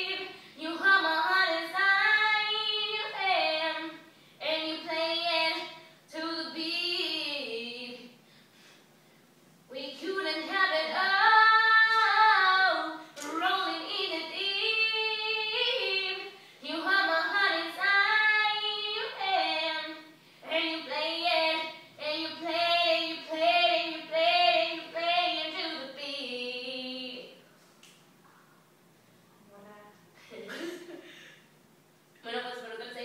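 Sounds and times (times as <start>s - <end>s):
woman singing unaccompanied: 0.0s - 8.2s, 9.7s - 27.4s.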